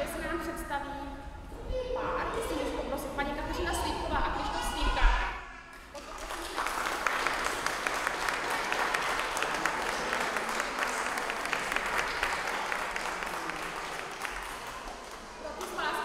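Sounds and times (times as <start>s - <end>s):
audience applauding: 5.9s - 15.8s.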